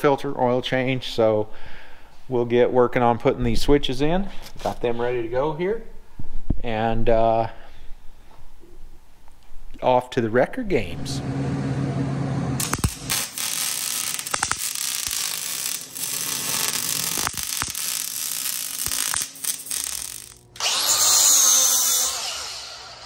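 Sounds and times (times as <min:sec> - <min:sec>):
angle grinder whine: 0:11.1 - 0:23.0
welding arc crackling: 0:12.6 - 0:23.0.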